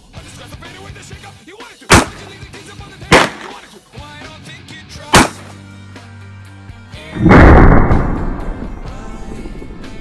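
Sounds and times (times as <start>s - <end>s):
background music: 0.0s - 10.0s
handgun shots: 1.9s - 2.4s, 3.1s - 3.7s, 5.1s - 5.6s.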